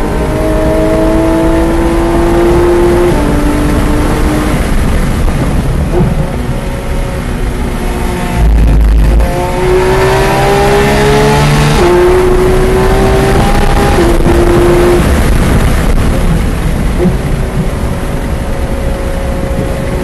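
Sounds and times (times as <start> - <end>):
heavy low rumble: 0.0 - 20.0
sports car engine accelerating: 0.0 - 20.0.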